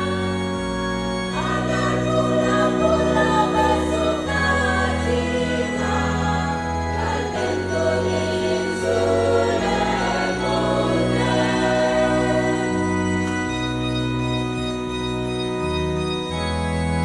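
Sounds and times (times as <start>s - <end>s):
choir singing a hymn: 0.0s - 13.9s
organ bass notes: 0.0s - 17.0s.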